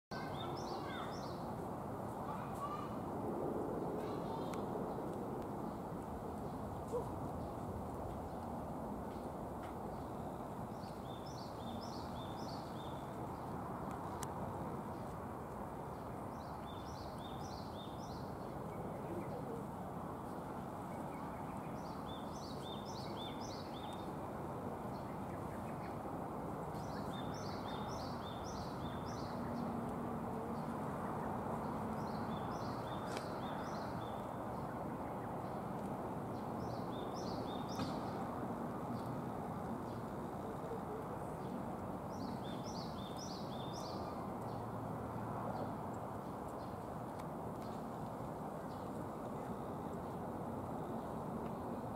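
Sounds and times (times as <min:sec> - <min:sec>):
songbird singing: 0:00.1 - 0:03.0, 0:04.0 - 0:15.1, 0:15.9 - 0:44.8
outdoor background hiss: 0:00.1 - 0:51.9.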